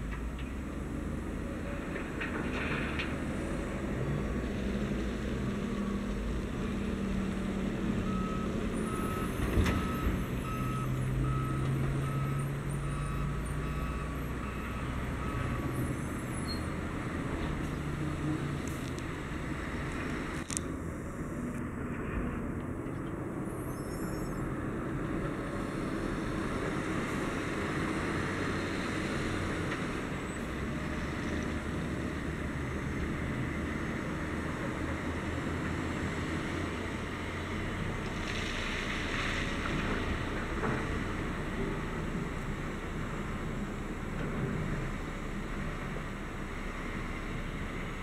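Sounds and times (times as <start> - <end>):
diesel truck engine rumbling: 0.0 - 48.0.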